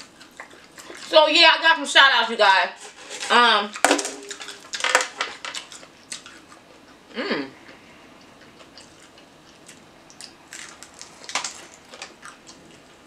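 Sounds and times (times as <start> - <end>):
mouth chewing and smacking: 0.0 - 1.2, 4.4 - 13.0
person humming: 7.1 - 7.7
fried food crackling: 8.2 - 13.0.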